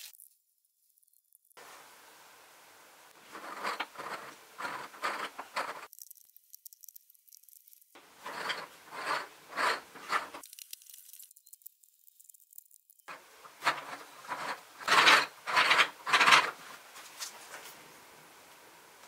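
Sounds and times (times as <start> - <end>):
wooden pieces scraping on table: 3.2 - 5.9, 8.0 - 10.4, 13.1 - 16.8.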